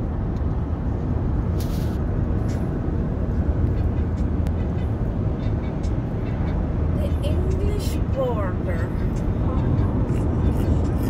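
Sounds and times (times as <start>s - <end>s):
car road noise from inside: 0.0s - 11.0s
brief hiss: 1.6s - 2.0s.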